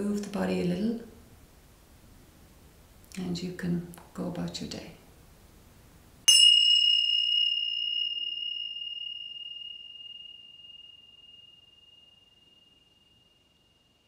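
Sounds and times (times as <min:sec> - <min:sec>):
small bell ringing: 0:06.3 - 0:13.9.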